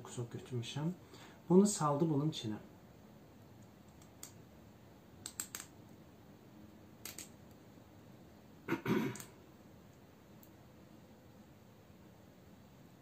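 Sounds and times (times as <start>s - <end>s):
fingers handling noises: 3.5s - 4.4s, 5.2s - 5.8s, 7.0s - 7.6s, 9.1s - 9.3s
small sharp clicks: 3.6s - 4.4s, 5.2s - 5.8s, 7.0s - 7.6s, 9.1s - 10.6s.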